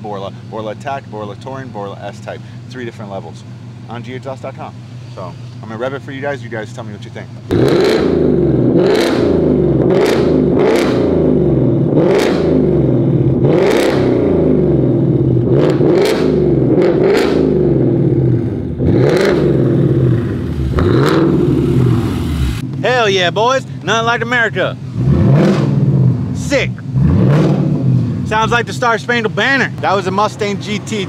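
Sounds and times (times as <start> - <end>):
car engine revving: 7.4 - 31.0.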